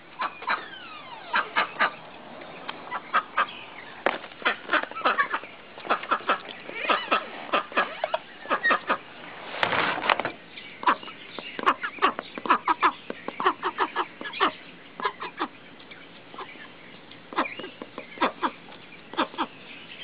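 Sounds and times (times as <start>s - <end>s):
duck quacking loudly: 1.3s - 2.0s, 4.4s - 9.0s.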